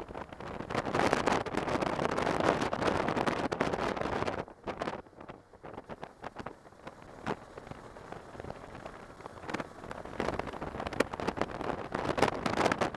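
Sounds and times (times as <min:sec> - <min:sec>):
motorcycle riding noise: 0:00.0 - 0:12.9
wind buffeting microphone: 0:00.0 - 0:12.9.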